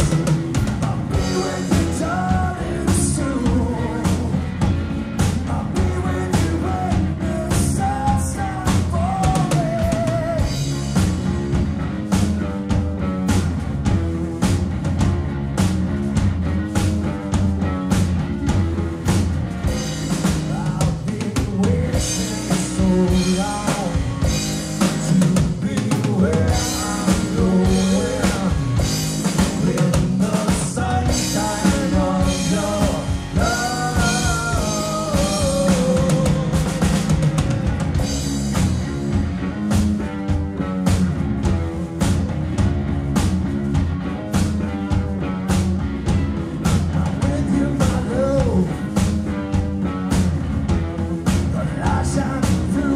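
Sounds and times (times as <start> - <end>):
lead vocal singing: 0.0 - 11.0, 20.2 - 37.3, 46.8 - 49.2, 51.3 - 52.9
live rock band playing: 0.0 - 52.9
steady drum strokes: 0.0 - 52.9.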